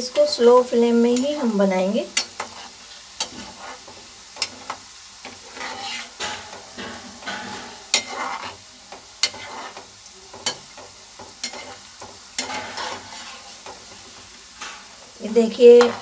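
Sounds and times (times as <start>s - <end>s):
peanuts sizzling in hot oil: 0.0s - 16.0s
metal spoon tapping pan: 4.4s - 13.0s, 15.7s - 16.0s.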